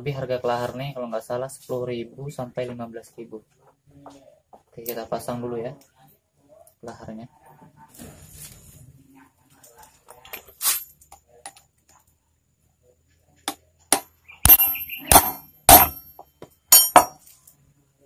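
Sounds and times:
metal-on-metal knocks: 13.9s - 17.2s
light metal clink: 14.0s - 17.5s.

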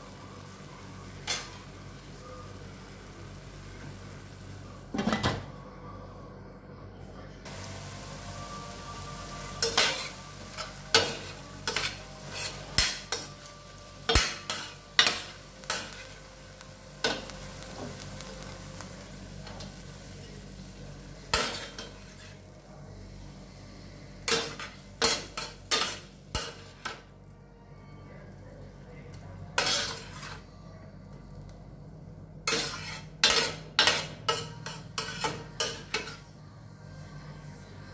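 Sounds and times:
chicken sizzling in frying pan: 0.0s - 4.6s, 7.5s - 22.4s
metal spoon scraping a pan: 9.5s - 13.4s, 14.1s - 16.2s, 24.2s - 27.0s, 29.6s - 30.5s, 32.4s - 36.3s.

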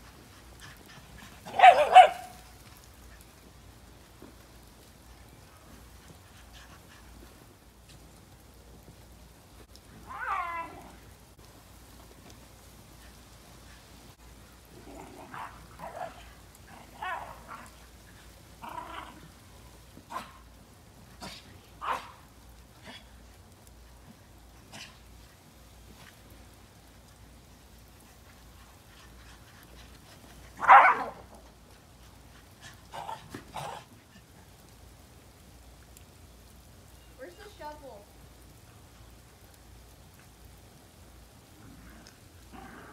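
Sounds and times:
dog barking: 1.5s - 2.4s, 21.8s - 22.2s, 30.6s - 31.2s.

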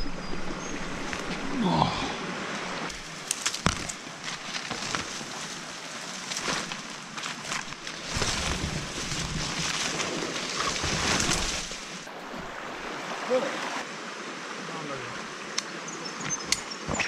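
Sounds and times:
rustling through scrub: 0.8s - 12.1s
branches snapping: 2.8s - 12.1s
footsteps: 2.9s - 11.8s.

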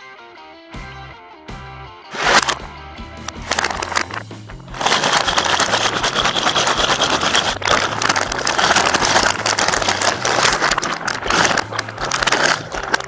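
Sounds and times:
plastic snack bag crinkling: 3.3s - 13.0s.

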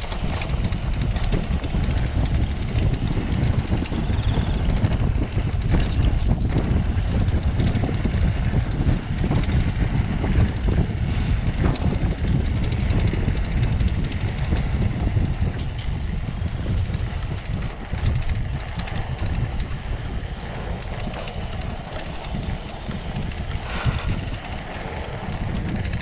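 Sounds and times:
bike rattling over rough ground: 0.0s - 26.0s
wind rumble on microphone: 0.0s - 26.0s.

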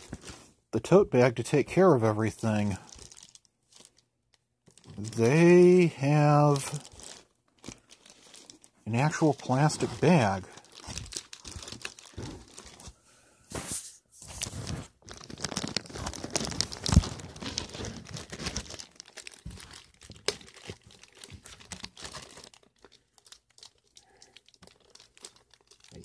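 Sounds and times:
plastic bag crinkling and tearing: 2.4s - 4.0s, 4.7s - 13.0s, 14.3s - 26.0s.

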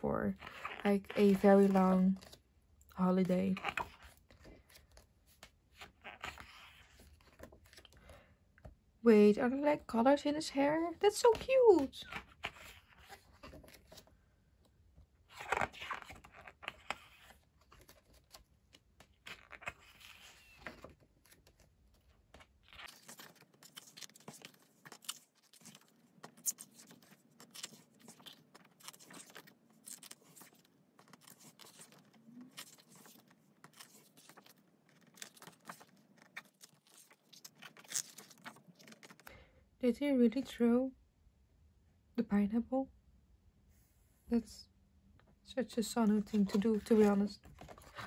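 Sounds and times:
paper pages rustling: 0.3s - 2.4s, 3.0s - 8.2s, 10.9s - 14.2s, 15.2s - 39.3s, 46.0s - 48.0s.

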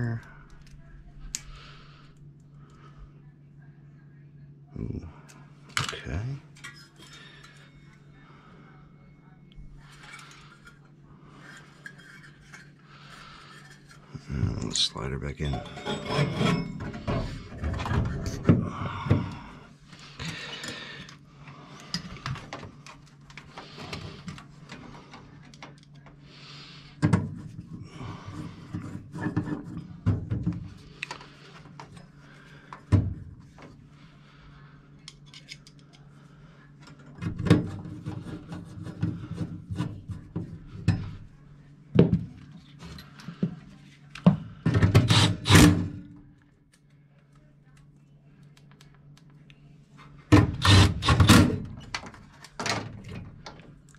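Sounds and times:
faint low hum: 0.0s - 53.9s
sheet metal scraping and clunks: 15.5s - 18.5s.

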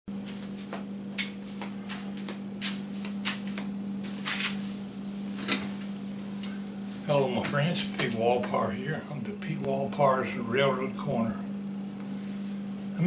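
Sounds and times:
steady low hum: 0.1s - 13.0s
person rustling and shuffling: 1.3s - 7.1s, 11.7s - 13.0s.

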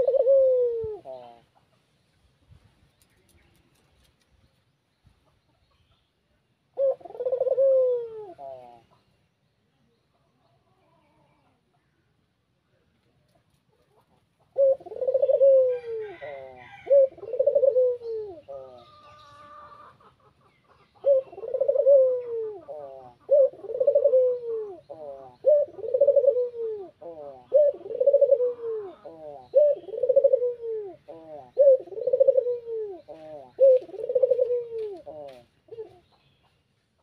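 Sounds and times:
dove cooing: 0.0s - 1.6s, 6.7s - 9.0s, 13.8s - 36.2s.

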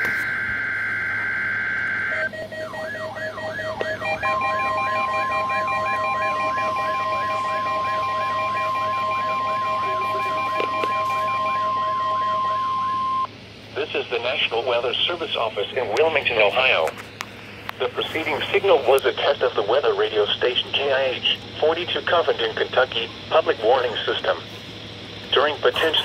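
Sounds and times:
pulsed beeps: 0.0s - 13.3s
warbling alarm: 0.0s - 13.3s
data burst: 0.0s - 14.2s
steady warning alarm tone: 0.0s - 16.8s, 17.4s - 26.0s.

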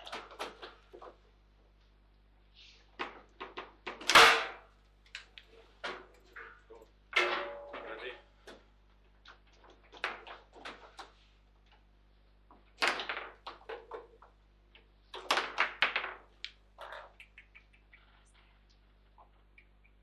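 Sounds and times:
table football knocks and clacks: 12.5s - 17.5s.

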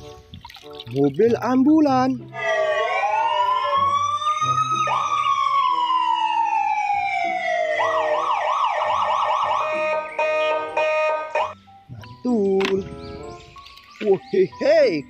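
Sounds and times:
ambulance siren: 2.3s - 11.6s.

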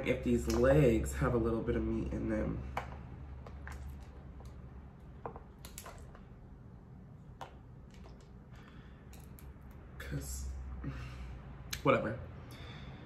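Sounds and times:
lobster shell cracking: 5.6s - 6.2s.

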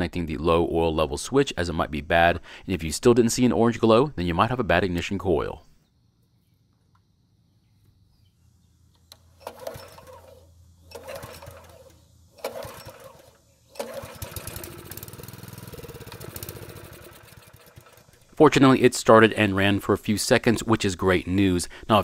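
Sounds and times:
recoil starter rope pulls: 9.1s - 18.5s
small engine running: 9.2s - 18.4s.

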